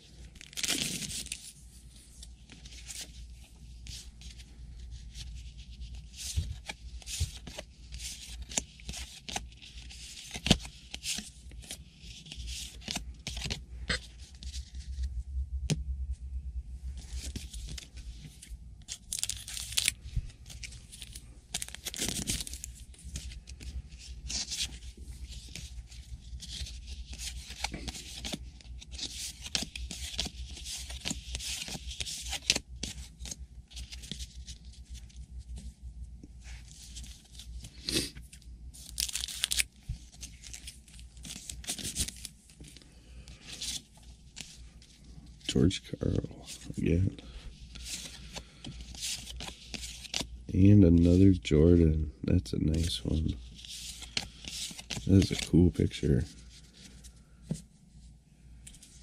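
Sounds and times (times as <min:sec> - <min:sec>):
low steady hum: 0:00.0 - 0:59.0
paper tearing and crinkling: 0:00.4 - 0:01.4, 0:19.1 - 0:23.4, 0:38.9 - 0:42.3, 0:52.7 - 0:55.9.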